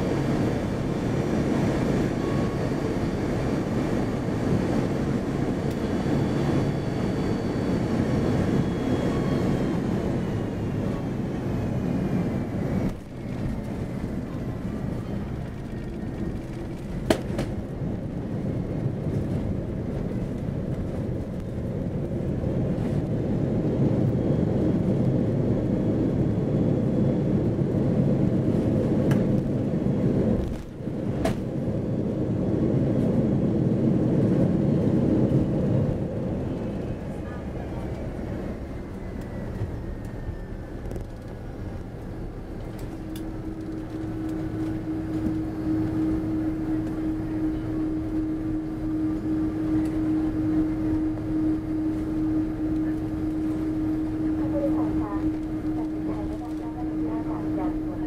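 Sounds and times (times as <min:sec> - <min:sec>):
deep engine and rolling rumble: 0:00.0 - 0:58.0
high engine whine falling in pitch: 0:34.8 - 0:58.0.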